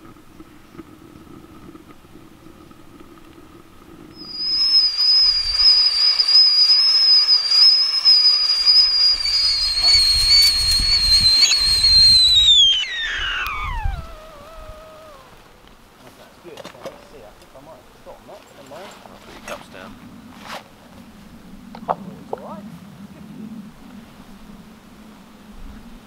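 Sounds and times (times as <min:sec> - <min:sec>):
low rumbling: 0:00.0 - 0:15.6
kettle whistle shrilling: 0:04.2 - 0:15.4.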